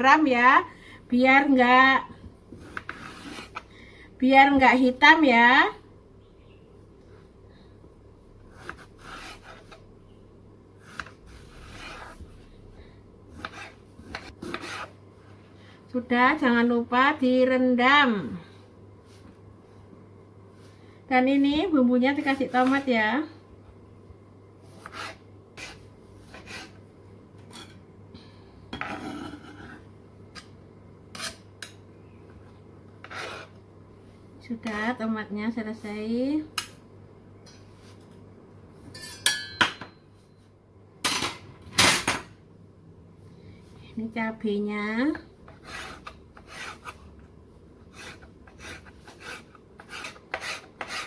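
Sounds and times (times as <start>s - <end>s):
eggplant rubbing and scraping: 2.5s - 3.6s, 8.5s - 9.8s, 10.8s - 12.5s, 24.6s - 26.8s, 45.5s - 47.2s, 47.9s - 51.0s.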